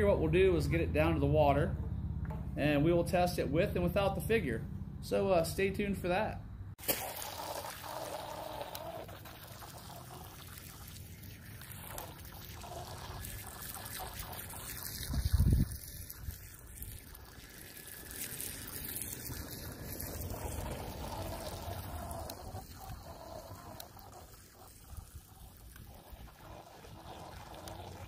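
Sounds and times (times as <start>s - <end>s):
water trickling and splashing: 6.8s - 28.0s.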